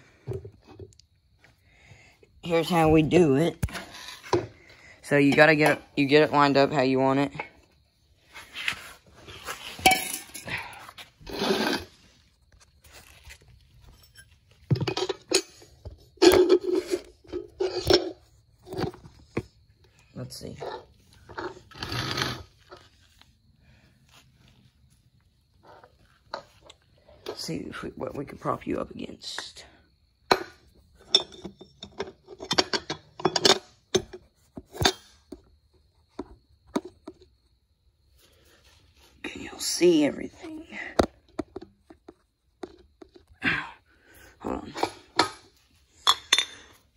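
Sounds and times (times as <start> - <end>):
metal hand tools clinking: 9.8 - 10.6.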